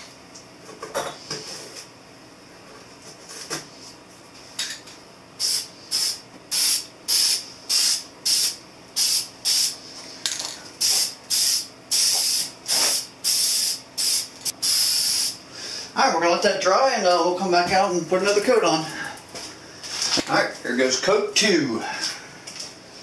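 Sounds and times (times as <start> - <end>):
spray paint can hissing: 5.4 - 9.8, 10.8 - 15.4.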